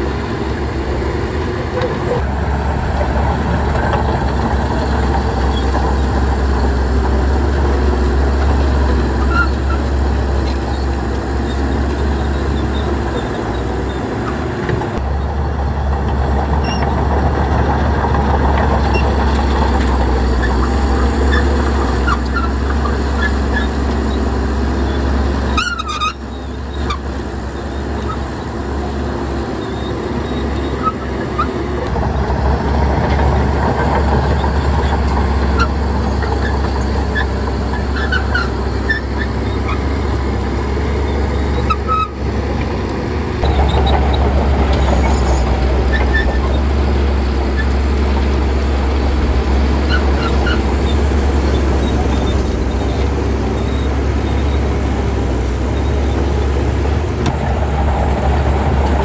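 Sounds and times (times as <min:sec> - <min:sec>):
heavy diesel machinery rumbling: 0:00.0 - 0:59.0
short high-pitched squeaks: 0:25.5 - 0:27.0.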